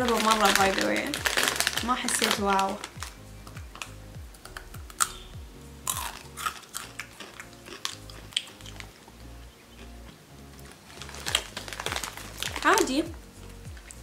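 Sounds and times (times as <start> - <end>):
background music with bass beat: 0.1 - 14.0
crunchy chewing of chip: 3.7 - 12.7.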